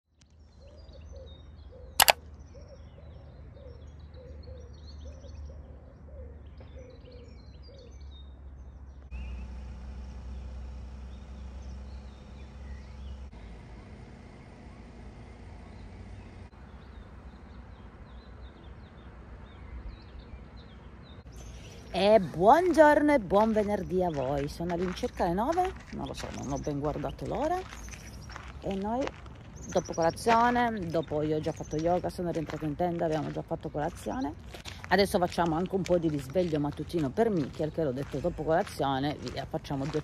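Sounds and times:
sharp click: 2.0s - 2.2s
low outdoor rumble: 8.1s - 40.0s
small birds chirping: 15.6s - 40.0s.

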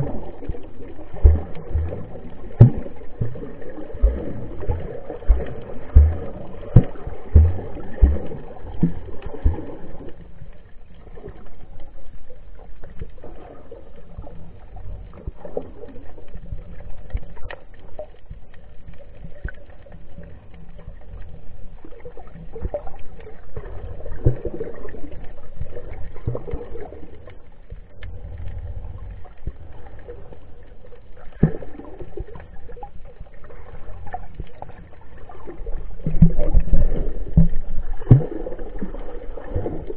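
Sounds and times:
low underwater thumps: 0.0s - 10.2s, 35.8s - 39.9s
underwater sloshing and gurgling: 0.0s - 39.9s.

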